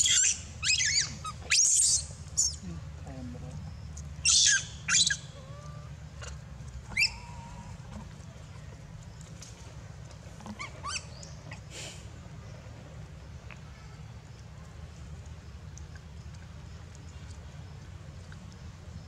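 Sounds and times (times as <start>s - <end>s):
monkeys squealing: 0.0s - 2.6s, 4.2s - 5.9s, 6.9s - 7.7s, 10.5s - 11.1s.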